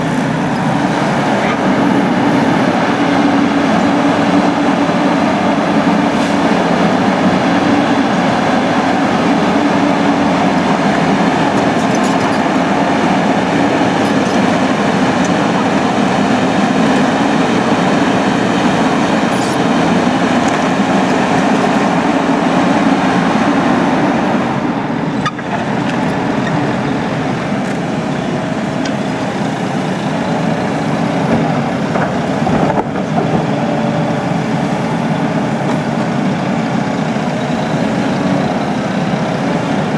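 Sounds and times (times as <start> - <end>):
excavator diesel engine running: 0.0 - 39.9
hydraulic arm digging: 0.0 - 39.9.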